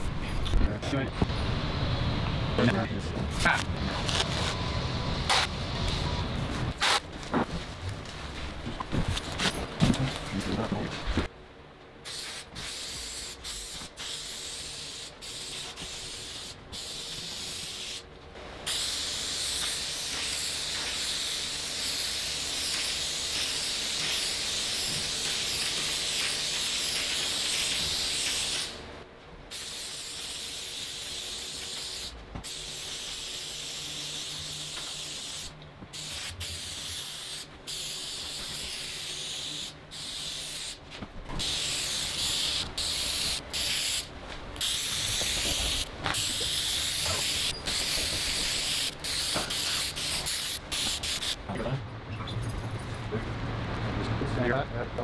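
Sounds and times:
aerosol spray hissing: 12.0 - 18.0, 18.7 - 28.8, 29.5 - 40.8, 41.4 - 51.4.

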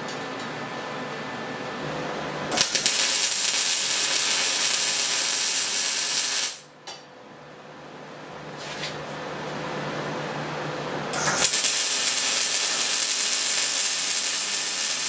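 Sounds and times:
welder arc sputtering: 2.5 - 6.7, 11.2 - 15.0.

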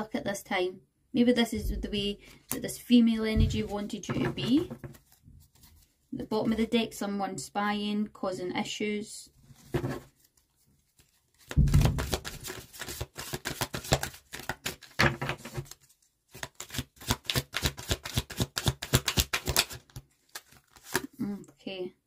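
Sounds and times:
cards being shuffled: 9.6 - 21.2.

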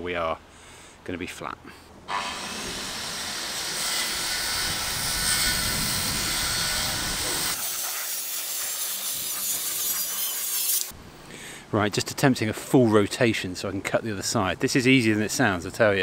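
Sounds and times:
circular saw cutting wood: 2.1 - 11.0.

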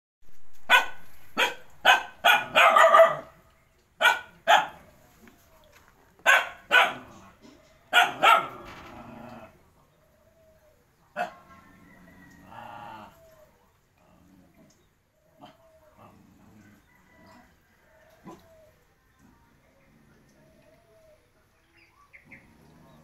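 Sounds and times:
dog barking: 0.7 - 3.4, 4.0 - 4.9, 6.2 - 7.2, 7.9 - 8.7, 11.2 - 11.5.

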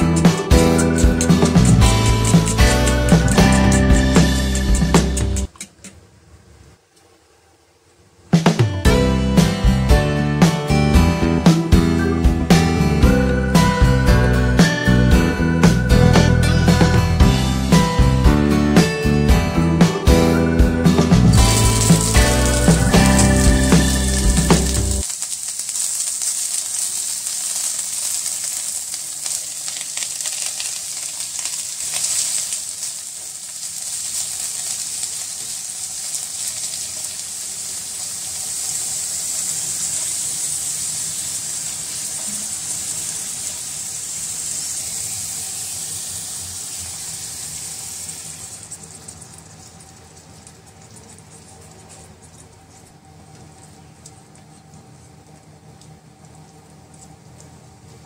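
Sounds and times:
chives sizzling in hot oil: 0.0 - 5.5, 21.3 - 50.1.

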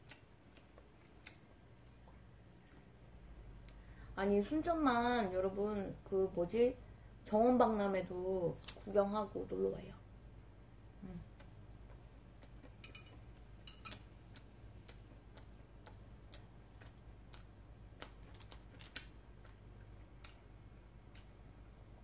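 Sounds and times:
low steady hum: 0.0 - 22.0
fork clicking on plate: 12.6 - 15.5.

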